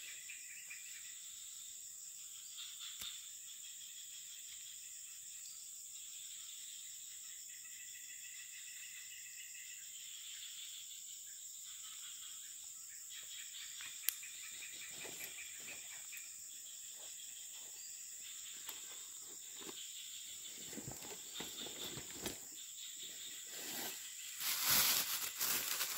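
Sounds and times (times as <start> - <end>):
insects calling in chorus: 0.0 - 25.9
rustling: 20.5 - 22.6, 23.4 - 25.9.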